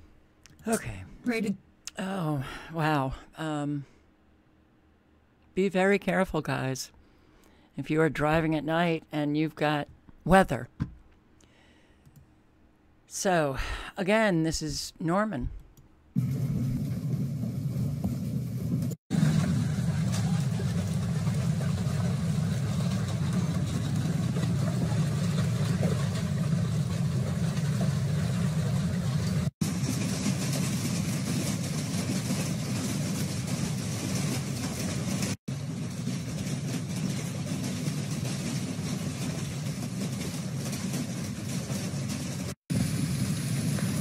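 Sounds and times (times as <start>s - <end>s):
hail and rain falling: 19.2s - 44.0s.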